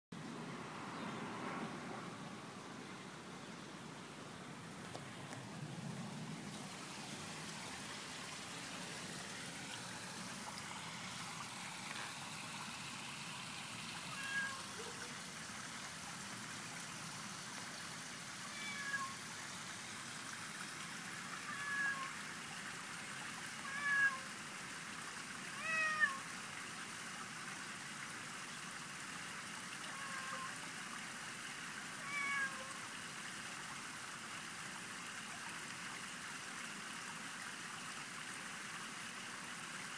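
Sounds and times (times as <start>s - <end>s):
cat meowing: 14.1s - 15.0s, 18.5s - 19.2s, 21.5s - 22.1s, 23.7s - 24.2s, 25.6s - 26.2s, 32.0s - 32.8s.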